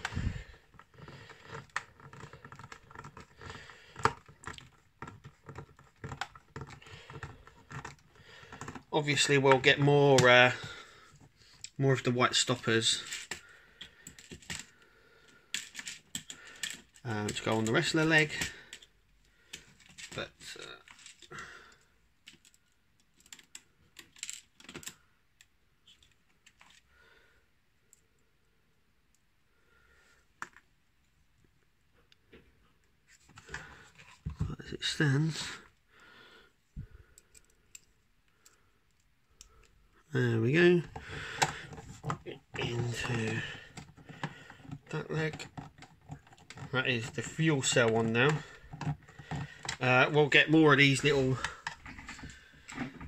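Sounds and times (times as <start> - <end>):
plastic parts clicking: 0.0 - 11.8, 12.6 - 21.3, 22.2 - 26.9, 40.6 - 53.0
screwdriver clicking and scraping: 15.5 - 18.9, 40.8 - 49.9.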